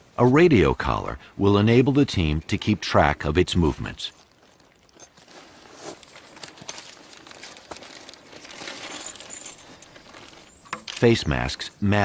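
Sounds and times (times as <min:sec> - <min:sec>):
rustling and crinkling: 0:03.7 - 0:11.5.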